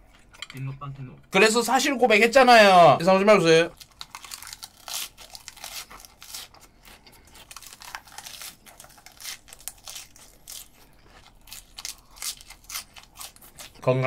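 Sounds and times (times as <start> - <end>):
crisp chewing crunches: 3.7 - 14.0.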